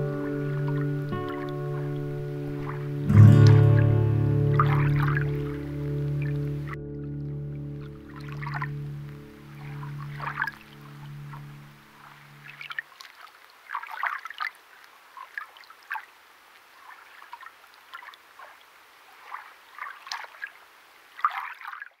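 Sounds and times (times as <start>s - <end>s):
music holding low notes: 0.0s - 12.6s
water splashing and sloshing: 0.0s - 22.0s.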